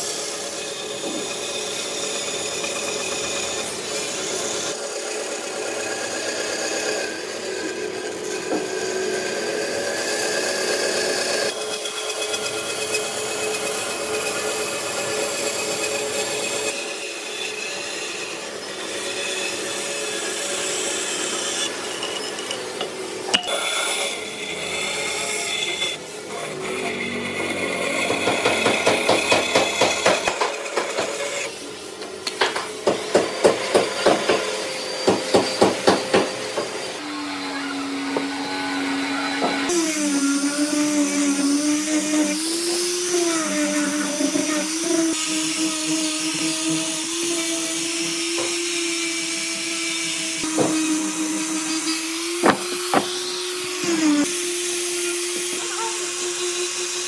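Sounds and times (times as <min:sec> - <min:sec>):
rhythmic wood scraping strokes: 0:00.0 - 0:57.0
small power tool motor humming: 0:00.0 - 0:57.0
sharp knocks: 0:52.4 - 0:53.2.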